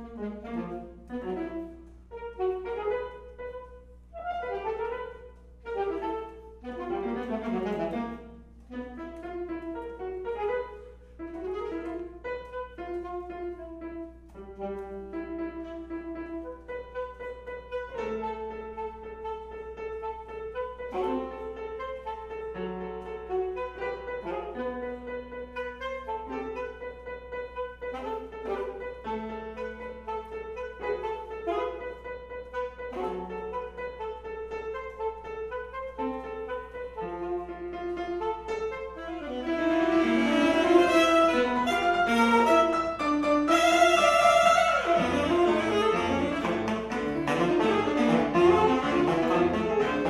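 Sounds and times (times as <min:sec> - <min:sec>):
alto saxophone: 0:00.0 - 0:50.0
piano chords: 0:00.0 - 0:50.0.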